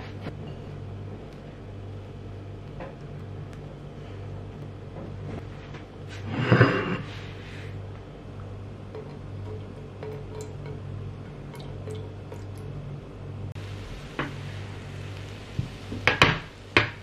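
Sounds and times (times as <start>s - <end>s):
low steady hum: 0.0s - 17.0s
plate sliding on wooden board: 6.1s - 7.8s.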